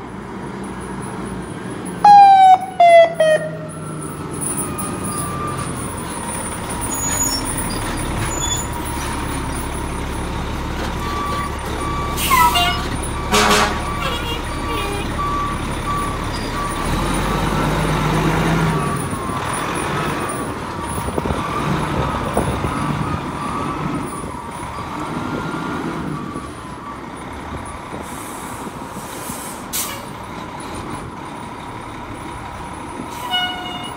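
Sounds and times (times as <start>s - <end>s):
reversing beeper: 2.0s - 10.3s, 11.0s - 18.0s
air brakes hissing: 27.9s - 30.2s.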